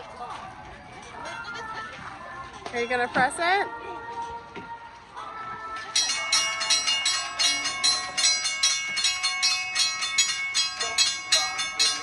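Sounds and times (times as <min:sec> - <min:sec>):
railroad crossing bell ringing: 0:05.9 - 0:12.0.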